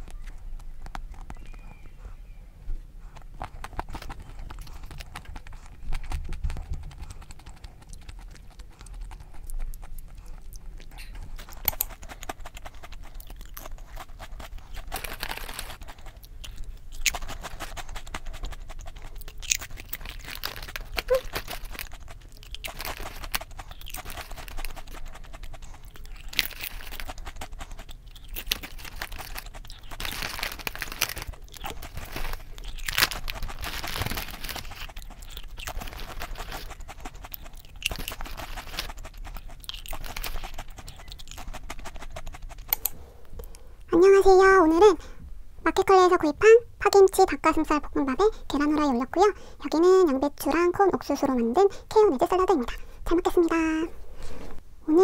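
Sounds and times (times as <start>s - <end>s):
chewing: 0.0s - 43.9s
foil chip bag crinkling: 3.5s - 9.9s, 10.8s - 42.8s.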